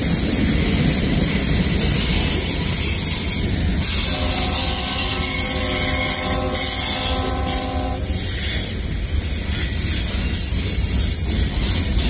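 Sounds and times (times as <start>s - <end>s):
freight train wheels rumbling on rail: 0.0s - 12.0s
held many-toned sound: 3.8s - 8.1s.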